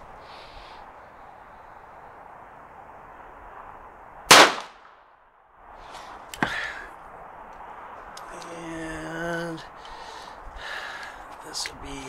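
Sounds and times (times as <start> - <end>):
gunshot crack: 4.3 - 5.0.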